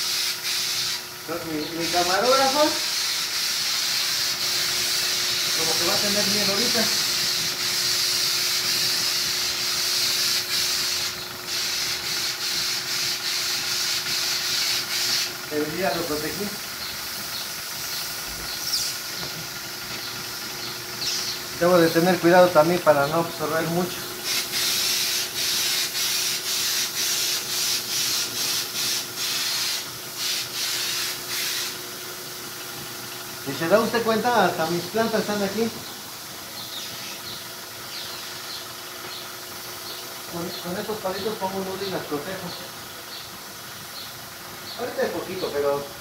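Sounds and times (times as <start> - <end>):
spray gun hissing: 0.0 - 46.0.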